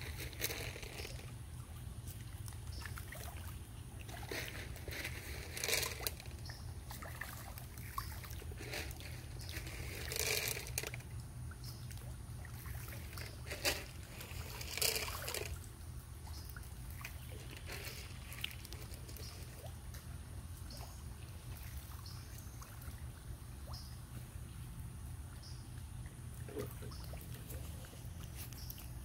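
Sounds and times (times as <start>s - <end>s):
small splashes in shallow water: 0.0s - 29.0s
fish breaking water surface: 12.6s - 15.6s.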